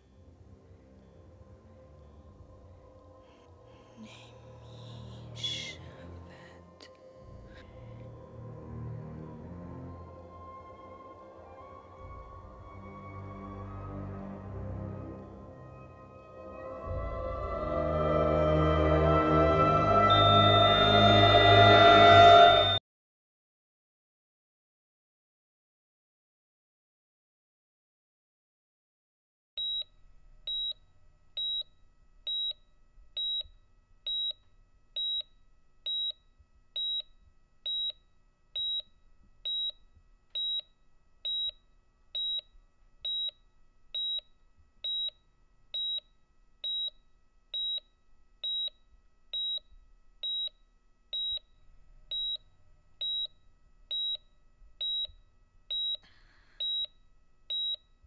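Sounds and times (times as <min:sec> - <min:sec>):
heart monitor beeping: 0:22.6 - 0:22.8, 0:29.6 - 0:29.9, 0:30.5 - 0:30.8, 0:31.4 - 0:58.0.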